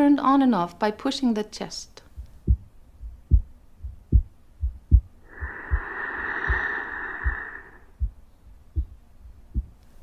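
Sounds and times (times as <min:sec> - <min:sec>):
heartbeat thumps: 0:02.1 - 0:09.8
slow breath: 0:05.2 - 0:08.1.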